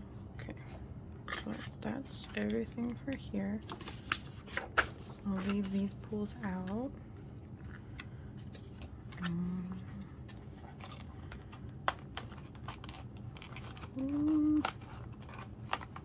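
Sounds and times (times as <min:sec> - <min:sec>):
steady low hum: 0:00.0 - 0:16.0
person humming: 0:09.2 - 0:10.1, 0:14.0 - 0:14.7.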